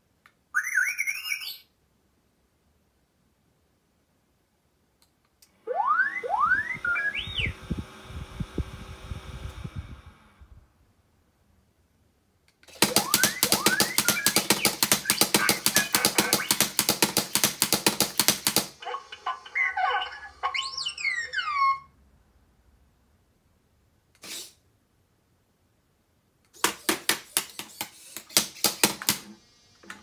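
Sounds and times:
robot whistles and chirps: 0.5s - 1.7s, 5.8s - 7.6s, 12.9s - 16.6s, 18.9s - 21.9s
robot chattering beeps: 12.8s - 16.6s, 18.8s - 21.9s.

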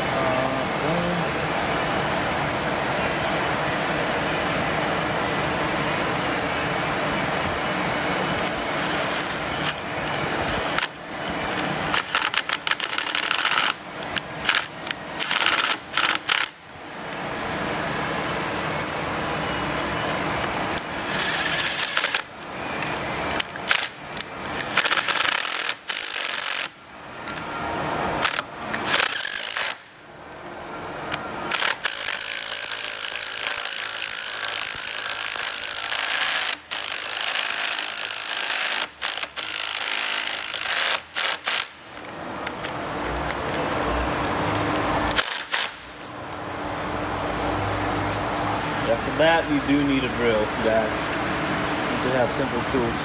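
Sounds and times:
cordless impact driver running: 31.5s - 41.8s.

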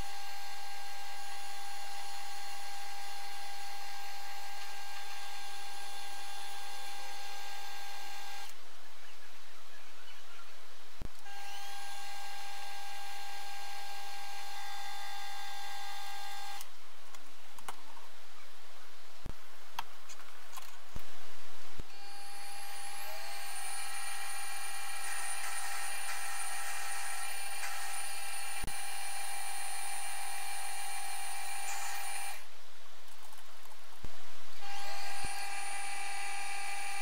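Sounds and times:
lathe motor whining: 21.9s - 32.4s, 34.6s - 37.0s.

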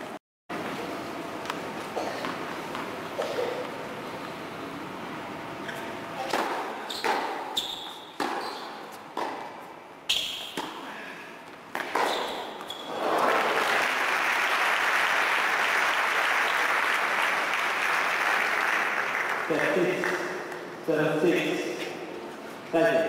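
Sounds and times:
racket striking tennis ball: 6.2s - 7.6s, 8.2s - 9.6s, 10.2s - 10.8s, 11.7s - 12.7s
crowd applauding: 12.9s - 20.2s.

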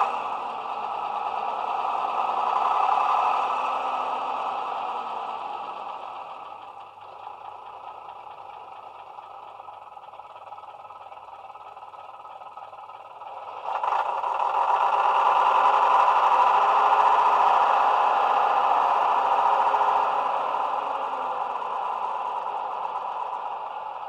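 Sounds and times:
diesel railcar engine from small speaker: 0.0s - 24.0s.

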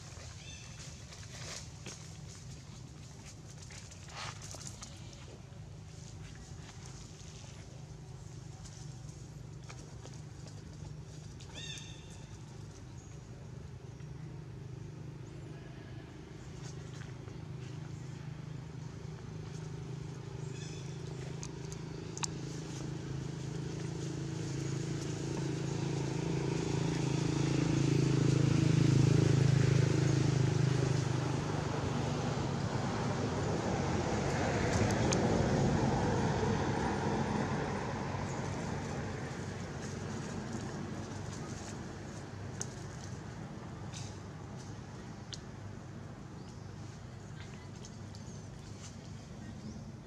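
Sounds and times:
vehicle engine hum passing: 0.0s - 50.0s
road noise hiss: 11.0s - 50.0s.

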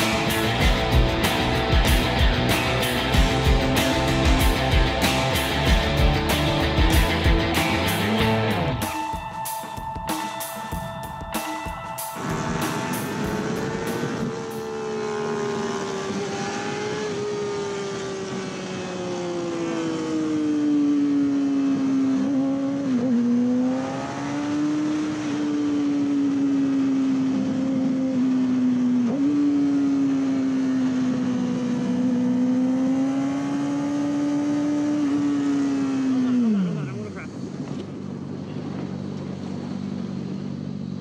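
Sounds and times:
motorcycle engine at high revs: 0.0s - 8.4s, 12.1s - 41.0s
wind rushing: 11.2s - 17.2s.

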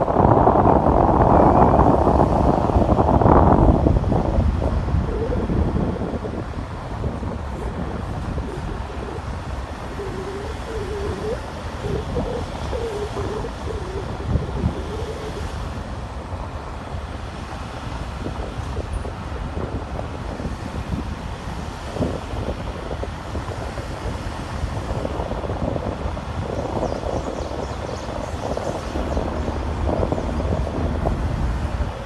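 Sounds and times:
vehicle tyres and engine rumble: 0.0s - 32.0s
wind noise: 0.0s - 32.0s.

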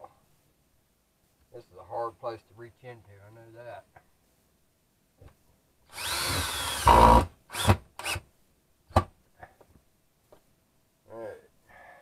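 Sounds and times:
cordless drill motor whine: 5.9s - 8.2s.

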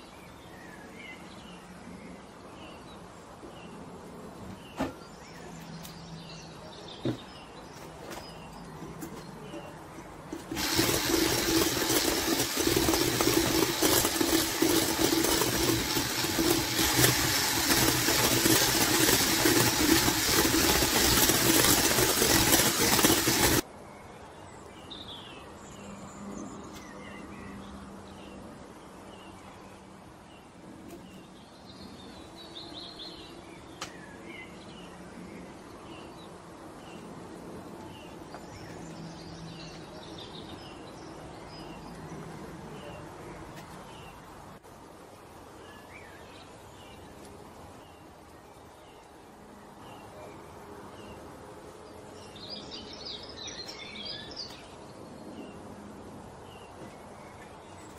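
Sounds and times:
electric mixer humming: 10.3s - 23.6s.

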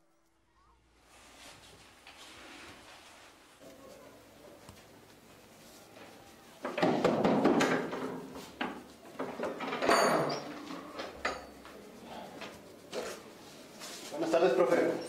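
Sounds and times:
wooden door rattling and knocking: 6.8s - 8.1s.

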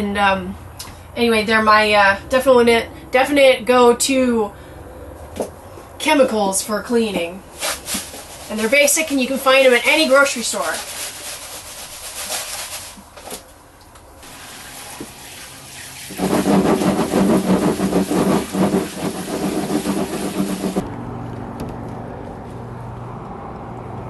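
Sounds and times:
steady low hum: 0.0s - 9.9s
shower water splashing into bucket: 14.2s - 20.8s.

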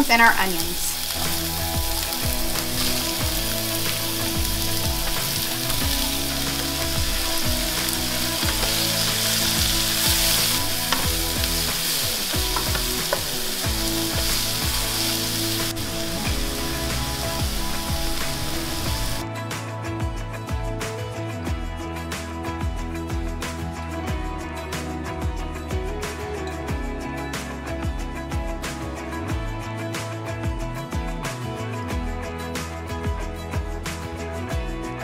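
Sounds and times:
vegetables sizzling in oil: 0.0s - 19.2s.

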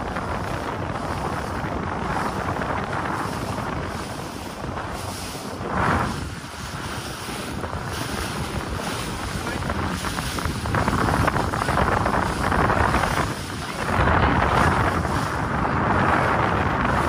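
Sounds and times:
boat engine rumble: 0.0s - 17.0s
water rushing past hull: 0.0s - 17.0s
wind buffeting microphone: 0.0s - 17.0s.

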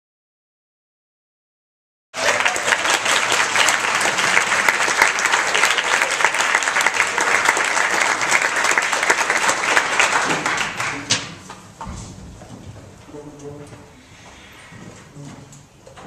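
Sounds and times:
audience applause: 2.2s - 11.3s.

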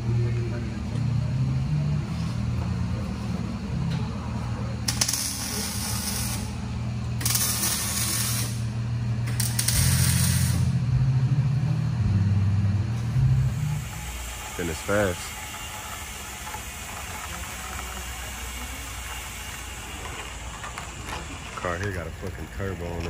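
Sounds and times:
low drone: 0.0s - 15.3s
hand tool hissing: 7.2s - 8.7s.

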